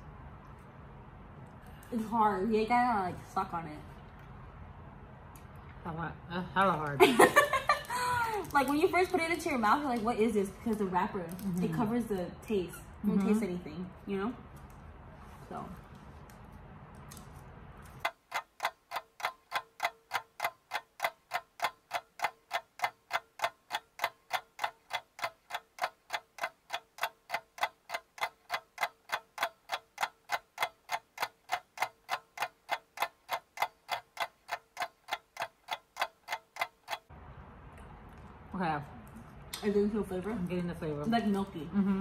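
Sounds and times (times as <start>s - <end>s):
clock ticking: 7.1s - 12.2s, 18.0s - 37.1s.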